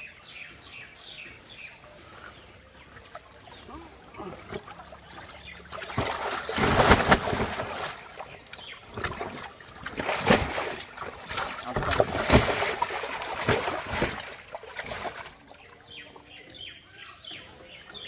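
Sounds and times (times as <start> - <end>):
fish splashing in water: 2.9 - 15.8
water dripping: 2.9 - 15.8.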